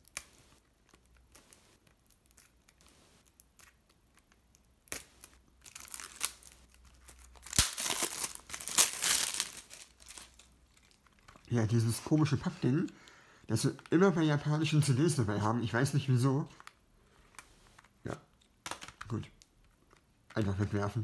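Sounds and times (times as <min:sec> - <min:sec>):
plastic wrap tearing and crinkling: 0:00.0 - 0:12.6.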